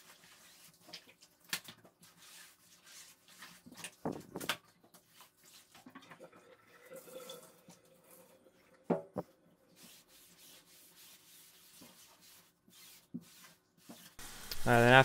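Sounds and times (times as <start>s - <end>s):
sponge scrubbing wet cloth: 0.0s - 4.1s, 4.8s - 6.1s, 9.6s - 15.0s.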